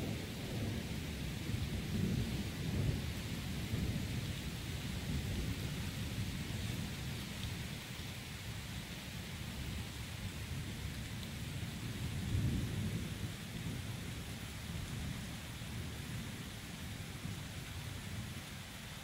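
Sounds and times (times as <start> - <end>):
rain falling: 0.0 - 19.0.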